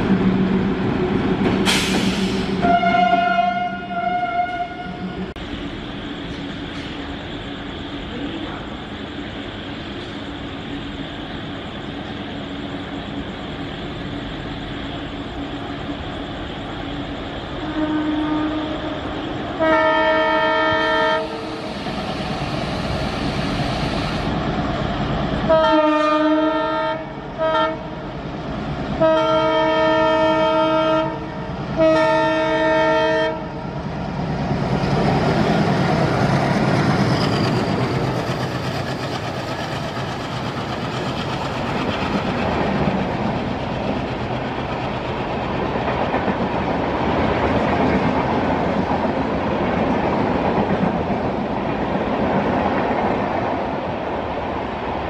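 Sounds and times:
train engine and wheels on rails: 0:00.0 - 0:55.0
locomotive air horn blasts: 0:02.6 - 0:05.0, 0:17.6 - 0:19.0, 0:19.6 - 0:21.5, 0:25.5 - 0:27.9, 0:29.0 - 0:33.5.

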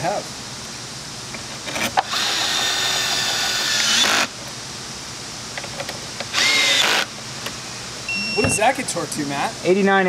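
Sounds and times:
cordless drill motor whine: 0:02.0 - 0:04.3, 0:06.3 - 0:07.1.

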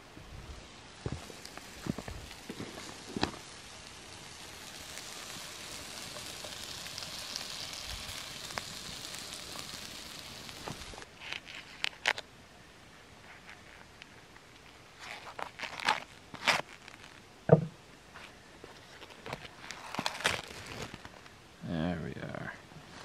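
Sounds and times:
fire crackling: 0:00.0 - 0:23.0
food sizzling in a pan: 0:00.6 - 0:11.1
clicks and knocks: 0:17.5 - 0:17.8.

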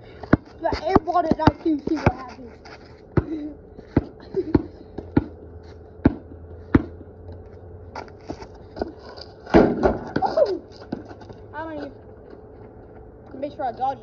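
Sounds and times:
basketball bouncing on concrete: 0:00.2 - 0:02.5, 0:03.1 - 0:07.1, 0:09.5 - 0:11.3
boy's voice: 0:00.6 - 0:02.6, 0:10.2 - 0:10.7, 0:11.5 - 0:12.0, 0:13.3 - 0:14.0.

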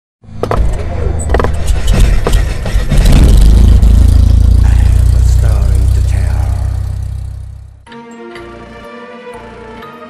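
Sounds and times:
sharp clicks and hits: 0:00.4 - 0:07.5
deep low rumble: 0:00.8 - 0:07.8
loud low drone: 0:02.0 - 0:07.9.

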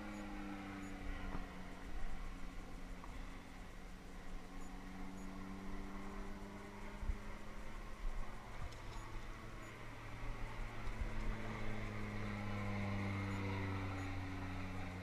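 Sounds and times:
propeller aircraft flying over: 0:00.0 - 0:15.0.

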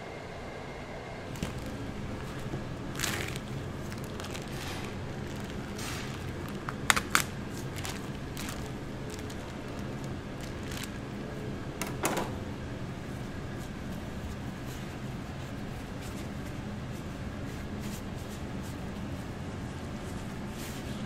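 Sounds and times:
steady low hum: 0:00.0 - 0:21.0
plastic bag crinkling and rustling: 0:01.3 - 0:11.3.

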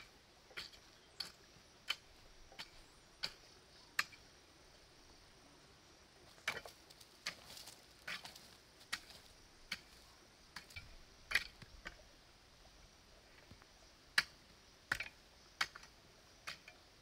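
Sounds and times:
hoe chopping stony soil: 0:00.0 - 0:04.2, 0:06.3 - 0:12.0, 0:14.2 - 0:16.8.

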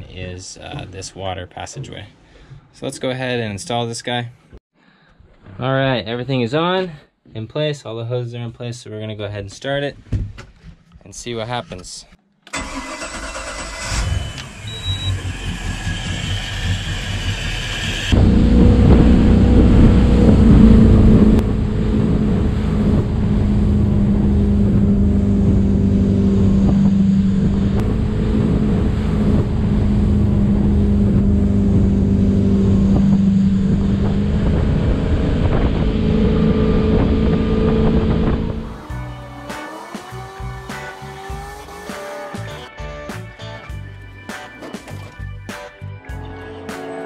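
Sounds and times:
boat engine starting and idling: 0:12.5 - 0:42.7
engine running at speed: 0:14.1 - 0:42.7.

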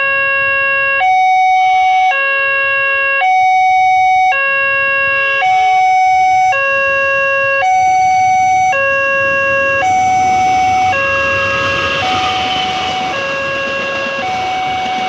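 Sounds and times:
level crossing warning alarm: 0:00.0 - 0:15.0
rushing noise: 0:04.6 - 0:15.0.

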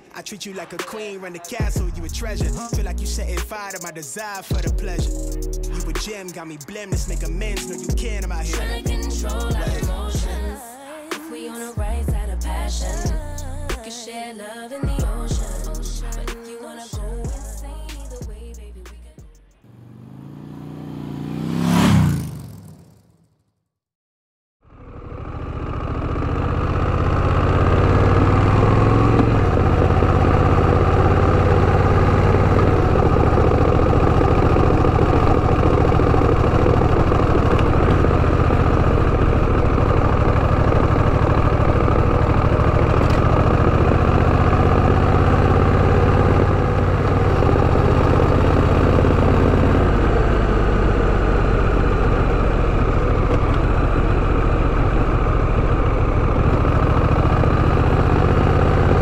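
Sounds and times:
motorcycle engine running: 0:01.5 - 0:03.6, 0:04.5 - 0:06.0, 0:07.0 - 0:10.5, 0:14.9 - 0:16.2, 0:19.6 - 0:23.2, 0:24.6 - 0:59.0.

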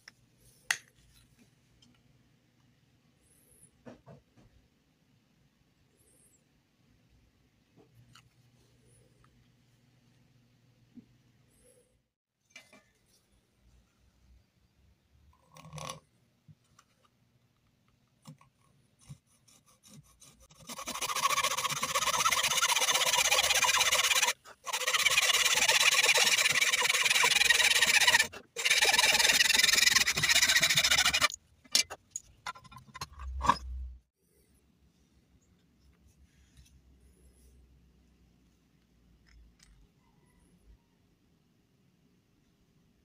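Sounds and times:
hacksaw cutting metal: 0:19.5 - 0:32.0.

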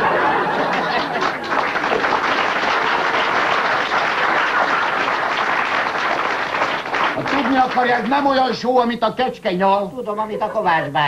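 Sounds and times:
audience laughing: 0:00.0 - 0:03.4
audience applauding: 0:00.0 - 0:08.6.

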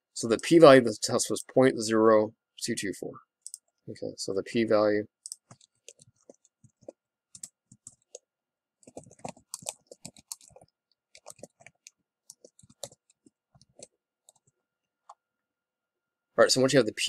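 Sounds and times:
typing on a keyboard: 0:05.3 - 0:08.2, 0:08.8 - 0:14.5.

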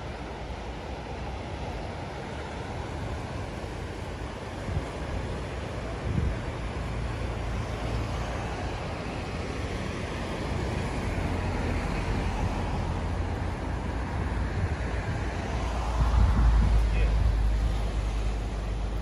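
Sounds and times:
waves breaking on rocky shore: 0:00.0 - 0:19.0
wind rumbling on microphone: 0:00.0 - 0:19.0.

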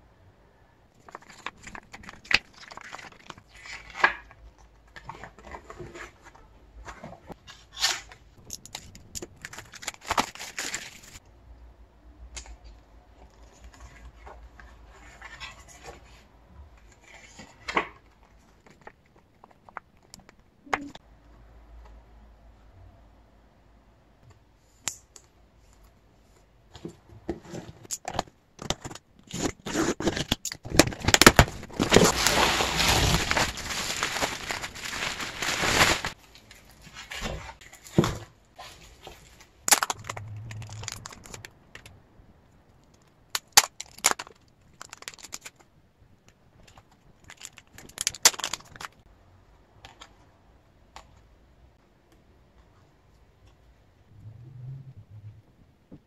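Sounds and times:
packaging rustling: 0:06.9 - 0:11.2, 0:29.3 - 0:38.0, 0:38.6 - 0:41.9, 0:46.7 - 0:49.0.

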